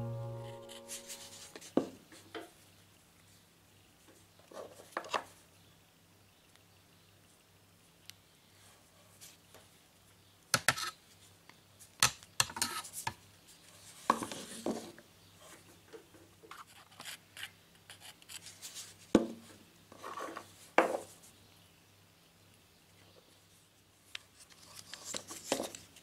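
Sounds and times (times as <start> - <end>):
faint steady hum: 0.0 - 4.3.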